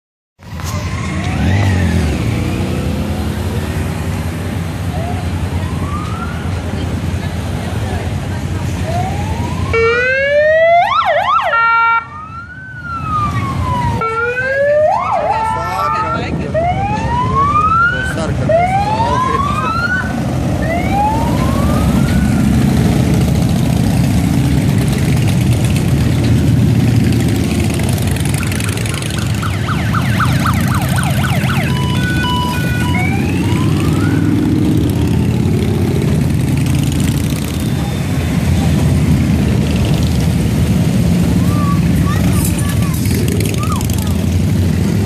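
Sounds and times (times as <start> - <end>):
siren warbling: 0.6 - 2.3, 8.9 - 22.9, 28.2 - 34.8
motorcycles riding past: 0.6 - 45.0
police siren whoops: 0.7 - 2.0, 4.9 - 6.6, 8.8 - 22.7, 28.3 - 34.6.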